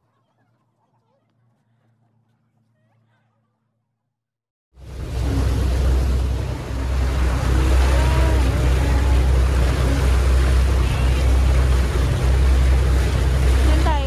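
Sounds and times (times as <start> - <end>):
ferry engine rumbling: 4.8 - 14.0.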